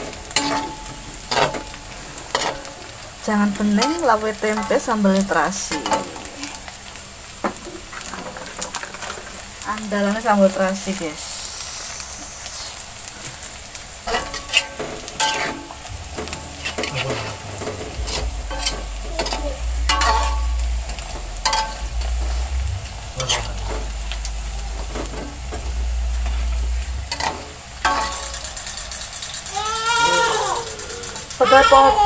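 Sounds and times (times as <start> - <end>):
low steady rumble: 0.0 - 29.7
food sizzling in oil: 0.0 - 32.0
metal spatula scraping a wok: 0.3 - 2.8, 14.1 - 29.6.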